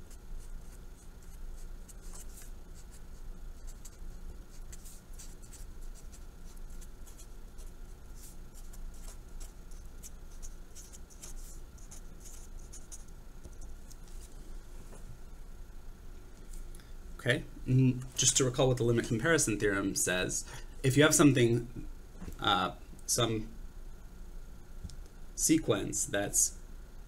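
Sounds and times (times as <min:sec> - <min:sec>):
marker pen scratching on paper: 0:00.0 - 0:14.3
faint electrical hum: 0:00.0 - 0:27.0.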